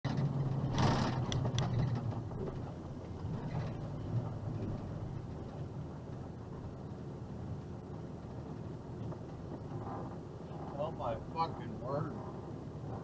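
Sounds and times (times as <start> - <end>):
rolling road noise: 0.0 - 13.0
truck engine running: 0.0 - 13.0
sharp clicks and rattles: 0.1 - 4.9.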